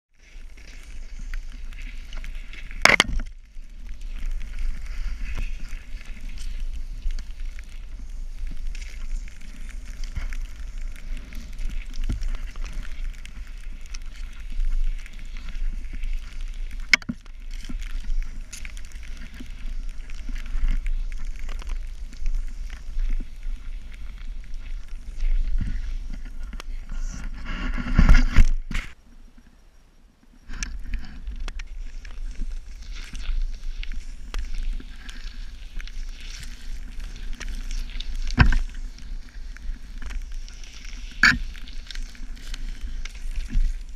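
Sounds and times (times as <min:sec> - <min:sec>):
snowboard hissing through powder: 0:03.7 - 0:16.7.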